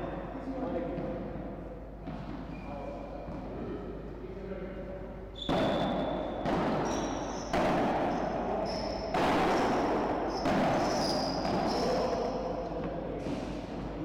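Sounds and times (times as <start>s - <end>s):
ball bouncing off court: 5.4s - 14.0s
paddle hitting ball: 5.5s - 8.5s, 9.1s - 12.1s.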